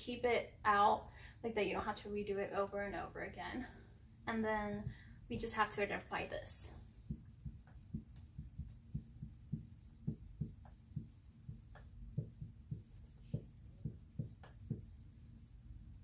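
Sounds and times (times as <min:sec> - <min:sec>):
marker writing on whiteboard: 0:06.7 - 0:16.0.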